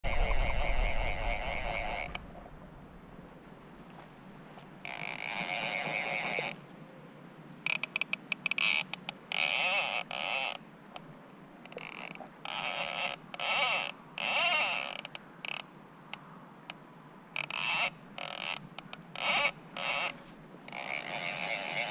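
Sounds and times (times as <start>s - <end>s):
fly reel ratchet buzzing: 20.7s - 21.9s.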